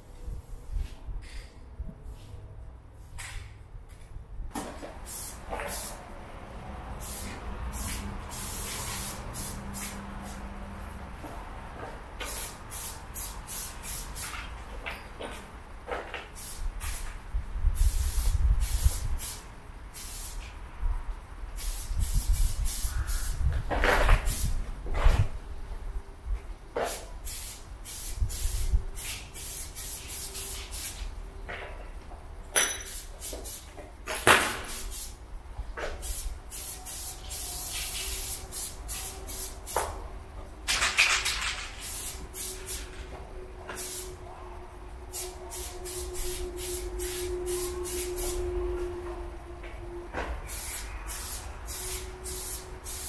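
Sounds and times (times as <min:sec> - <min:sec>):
spray paint can hissing: 0:05.0 - 0:06.0, 0:07.0 - 0:10.5, 0:12.2 - 0:14.5, 0:16.1 - 0:20.6, 0:21.6 - 0:24.6, 0:26.8 - 0:31.2, 0:32.8 - 0:35.2, 0:35.9 - 0:40.0, 0:40.8 - 0:43.0, 0:43.7 - 0:44.2, 0:45.1 - 0:48.4, 0:50.4 - 0:53.0.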